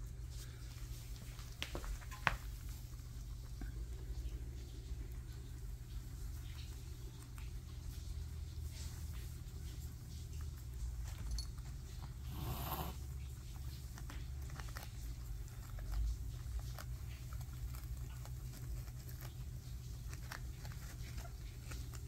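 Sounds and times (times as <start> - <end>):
guinea pigs munching: 0.0 - 22.0
rustle: 10.6 - 22.0.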